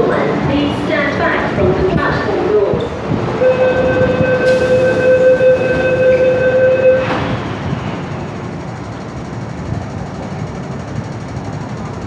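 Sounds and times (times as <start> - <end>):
train rumbling at platform: 0.0 - 12.0
door-closing warning buzzer: 3.4 - 7.2.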